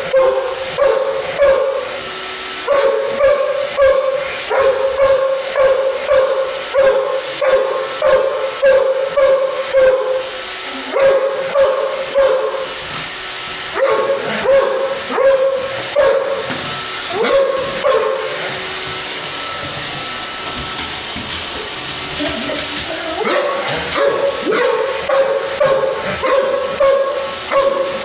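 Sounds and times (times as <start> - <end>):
dog barking: 0.1 - 1.9, 2.7 - 10.3, 10.9 - 12.7, 13.8 - 16.4, 17.1 - 18.3, 23.2 - 28.0.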